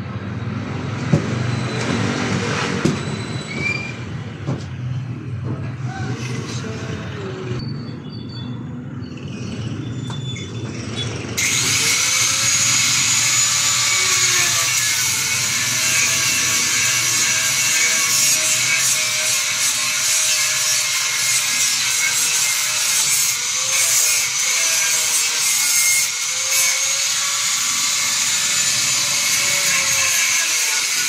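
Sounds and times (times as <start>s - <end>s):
power tool motor whine: 11.4s - 17.0s
power tool cutting wooden board: 11.4s - 31.0s.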